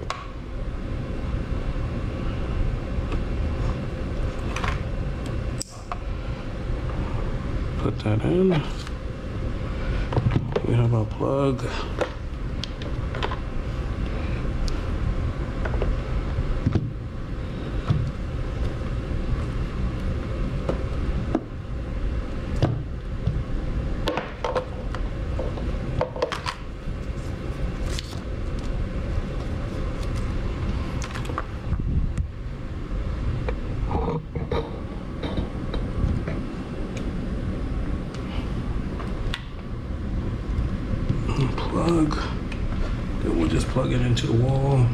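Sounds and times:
steady low rumble: 0:00.0 - 0:44.9.

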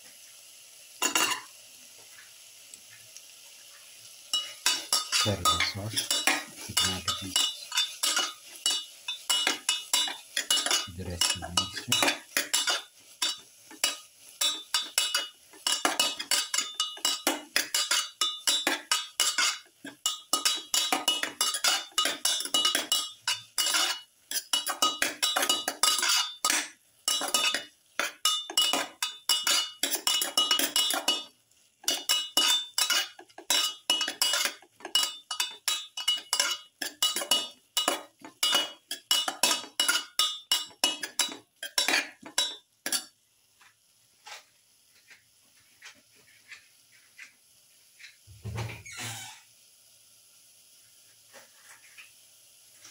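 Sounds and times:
metal spoon scraping metal pan: 0:04.3 - 0:31.3, 0:31.9 - 0:43.1.

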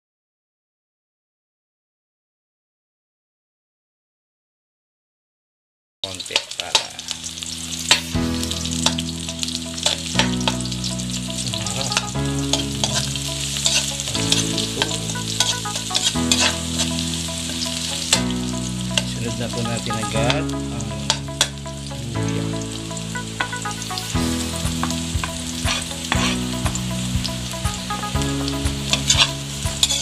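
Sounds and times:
onion and garlic sizzling in oil: 0:06.0 - 0:30.0
metal ladle scraping and clinking wok: 0:07.8 - 0:08.1, 0:09.8 - 0:10.7, 0:11.8 - 0:17.8, 0:25.6 - 0:26.5, 0:28.9 - 0:30.0.

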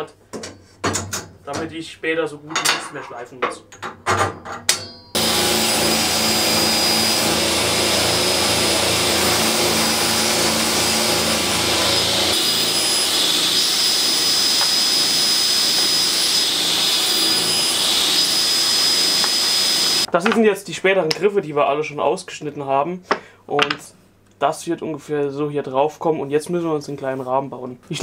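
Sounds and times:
table saw cutting plywood: 0:05.2 - 0:20.1.

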